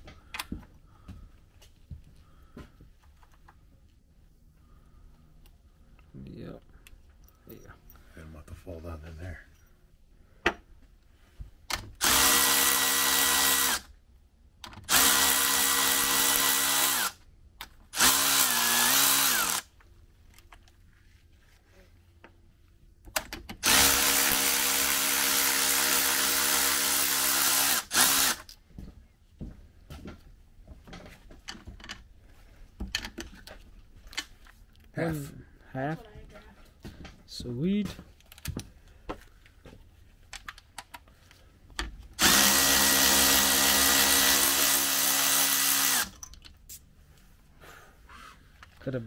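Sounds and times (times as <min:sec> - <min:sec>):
cordless ratchet motor whine: 0:12.0 - 0:13.9, 0:14.9 - 0:17.2, 0:18.0 - 0:19.7, 0:23.6 - 0:28.5, 0:42.2 - 0:46.2.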